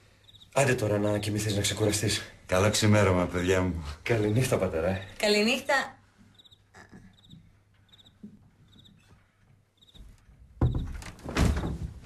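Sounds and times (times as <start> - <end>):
cricket chirping: 0.0 - 2.0, 6.3 - 9.0, 9.8 - 10.0.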